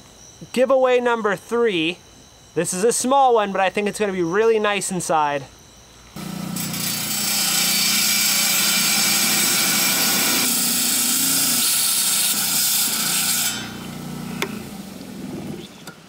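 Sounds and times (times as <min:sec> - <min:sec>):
saw motor hum: 0:06.2 - 0:15.7
blade grinding on stone: 0:06.4 - 0:14.1.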